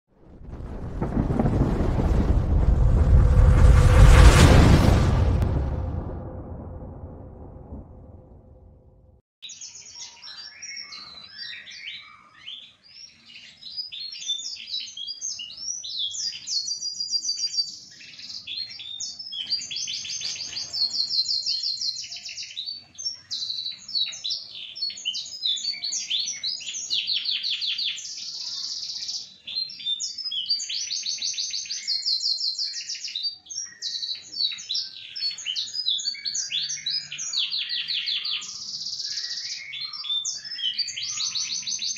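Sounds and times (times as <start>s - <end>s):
canary singing trills: 9.4s - 41.9s.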